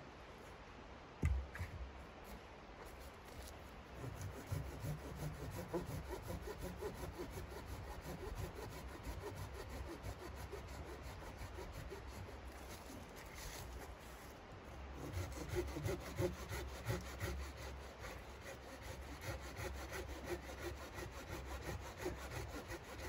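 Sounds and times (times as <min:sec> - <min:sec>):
hand saw rasping through wood: 0:04.0 - 0:13.8, 0:15.0 - 0:23.0.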